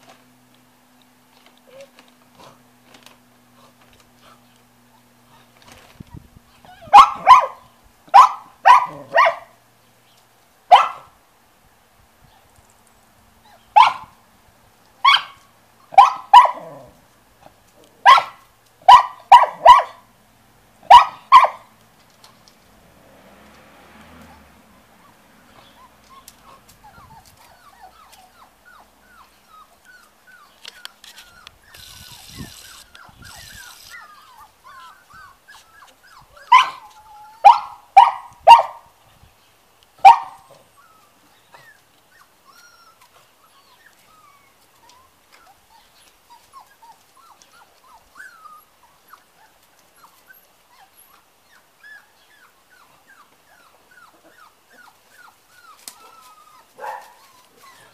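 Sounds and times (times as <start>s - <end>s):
puppies yipping and whimpering: 4.2s - 7.5s, 24.3s - 37.8s, 40.1s - 57.9s
loud dog barks: 6.9s - 9.6s, 10.7s - 11.1s, 13.8s - 14.1s, 16.0s - 16.8s, 18.0s - 20.0s, 20.9s - 21.7s, 36.5s - 36.8s, 37.4s - 38.9s, 40.0s - 40.4s, 56.8s - 57.2s.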